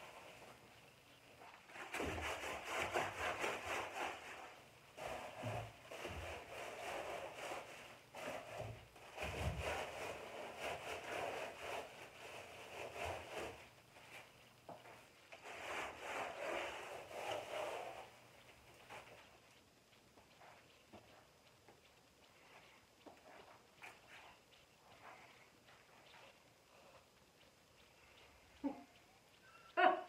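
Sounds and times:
paint scrubbed onto canvas: 0:01.7 - 0:14.3, 0:15.4 - 0:18.2.

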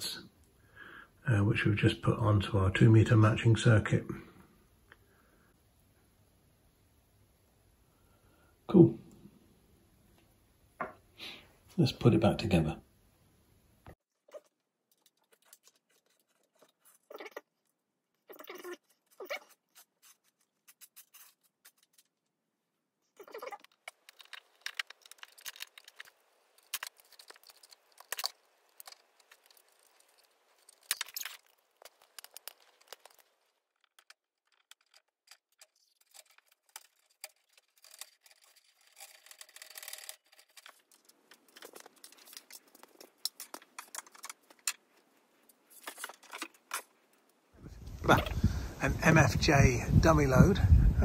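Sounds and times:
small parts clicking and rattling: 0:14.3 - 0:17.8, 0:23.3 - 0:47.4.

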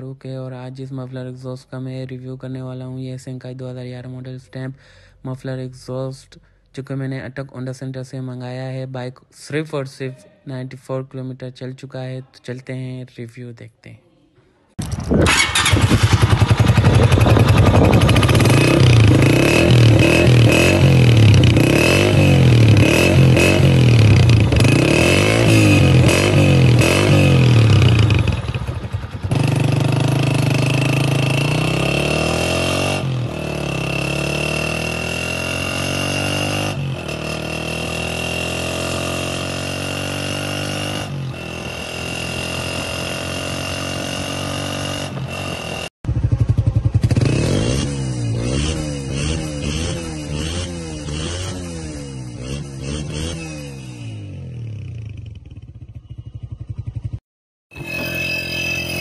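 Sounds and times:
motorcycle engine revving: 0:14.8 - 0:57.2.

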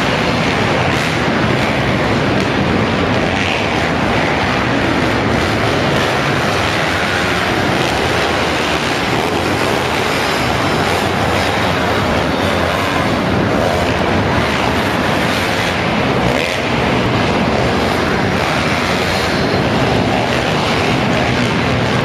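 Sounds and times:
motocross bike engines echoing: 0:00.0 - 0:22.0.

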